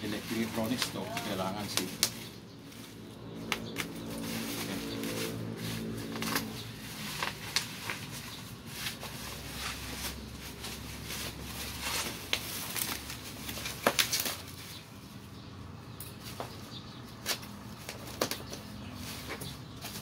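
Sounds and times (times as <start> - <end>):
plastic wrap crinkling and tearing: 0.0 - 14.9.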